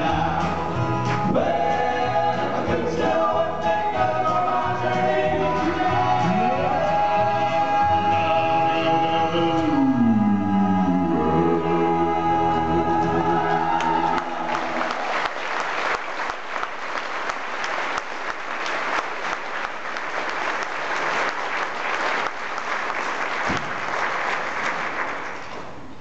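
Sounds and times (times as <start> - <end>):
congregation applauding: 13.1 - 25.8.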